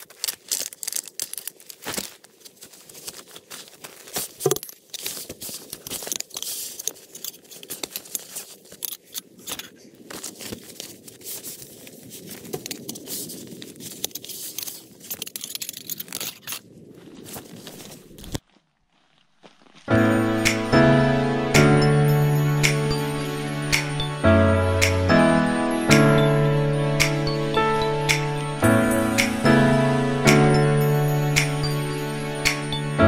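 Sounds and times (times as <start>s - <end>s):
sharp plastic crackle: 0.0s - 19.9s
bag and tarp rustling: 0.0s - 20.4s.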